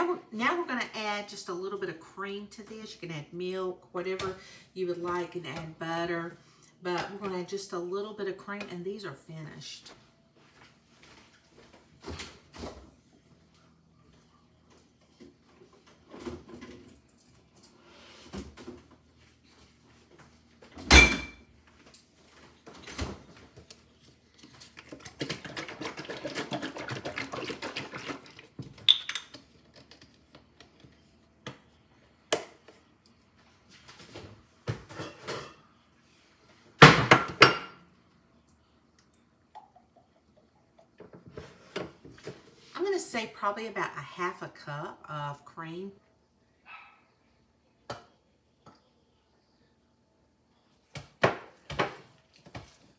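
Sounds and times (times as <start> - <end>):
dishes and utensils clattering: 34.7 - 35.7.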